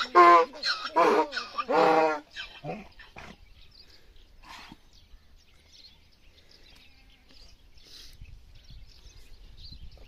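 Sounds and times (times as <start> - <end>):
small birds chirping: 0.0 - 10.0
wind rumble on microphone: 7.4 - 10.0.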